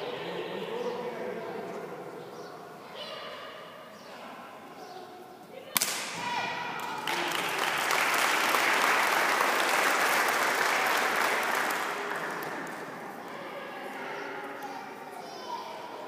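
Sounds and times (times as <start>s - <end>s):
sharp crack: 5.8s - 6.9s
spectators applauding: 6.8s - 13.0s.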